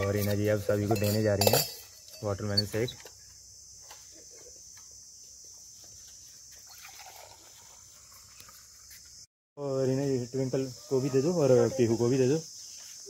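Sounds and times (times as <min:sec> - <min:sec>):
steel tumblers clinking: 0:00.0 - 0:03.0
crickets chirring: 0:00.0 - 0:13.0.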